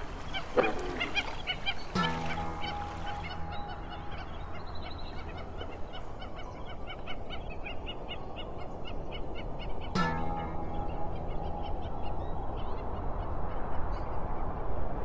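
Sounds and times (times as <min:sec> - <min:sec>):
waterfowl calls: 0:00.0 - 0:13.1
held musical note: 0:02.0 - 0:06.4.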